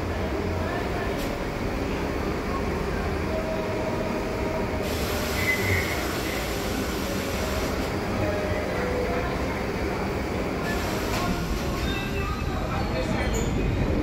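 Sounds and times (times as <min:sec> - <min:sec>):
train hum and rumble: 0:00.0 - 0:14.0
hiss: 0:04.8 - 0:07.9, 0:10.7 - 0:11.9.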